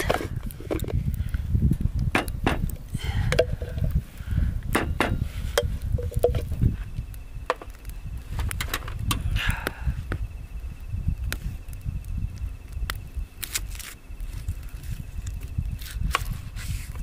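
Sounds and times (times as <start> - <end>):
spices being crushed by hand: 4.6 - 10.2, 12.8 - 17.0.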